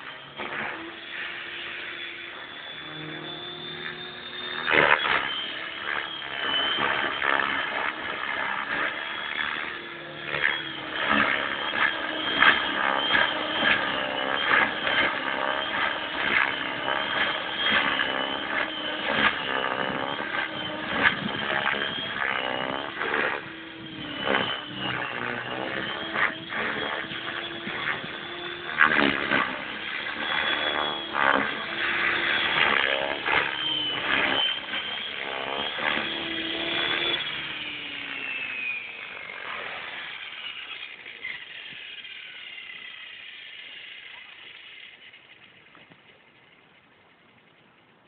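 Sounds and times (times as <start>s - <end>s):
rc helicopter rotor and motor: 0.0s - 47.7s.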